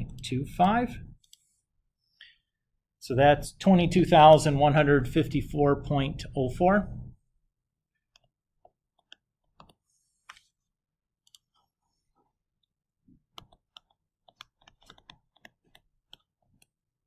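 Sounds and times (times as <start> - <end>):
stylus tapping on tablet screen: 8.1 - 10.5, 13.1 - 16.8.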